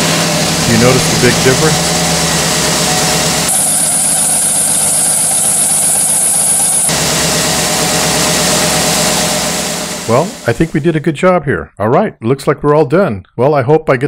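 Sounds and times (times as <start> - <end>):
car engine idling: 0.0 - 10.8
steady high whine: 0.0 - 11.1.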